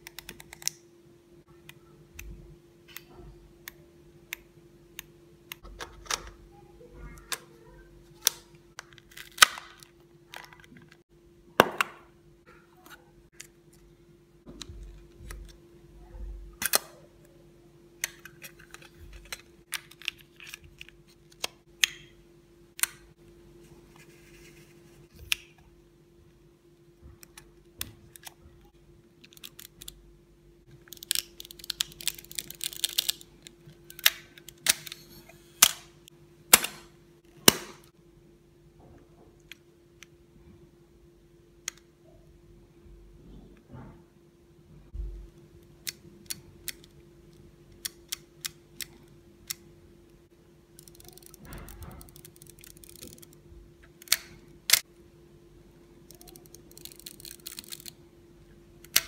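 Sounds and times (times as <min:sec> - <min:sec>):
camera mechanical clicks and snaps: 0:50.8 - 0:53.3.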